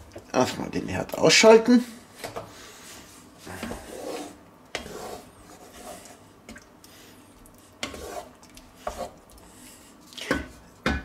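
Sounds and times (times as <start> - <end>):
wooden spatula scraping stew: 2.6 - 6.3, 7.6 - 10.0.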